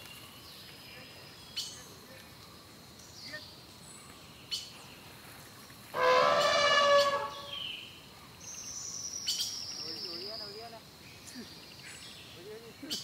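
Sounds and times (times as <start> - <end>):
birds chirping: 0.0 - 13.0
elephant trumpeting: 5.9 - 7.6
thin high whistle: 6.0 - 7.7.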